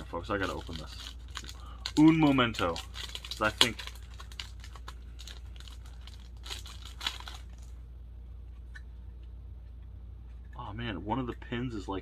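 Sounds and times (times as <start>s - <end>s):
packaging crinkling and tearing: 0.0s - 7.8s.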